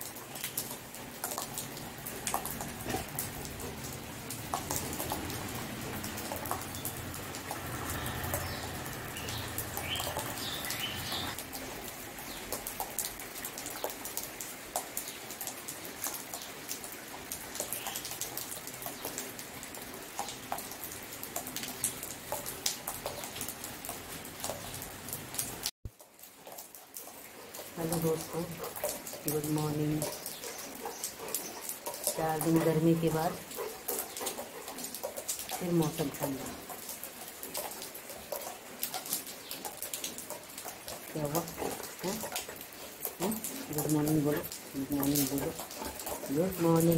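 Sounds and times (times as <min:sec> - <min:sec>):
rain patter and drips: 0:00.0 - 0:46.9
bird chirping: 0:08.0 - 0:11.4.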